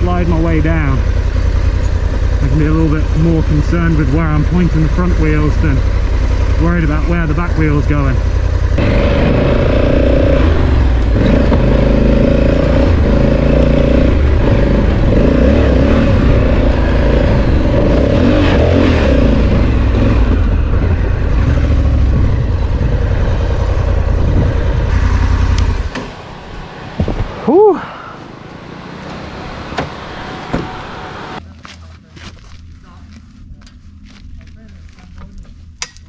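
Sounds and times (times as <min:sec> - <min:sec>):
motorcycle engine revving: 0:00.0 - 0:27.6.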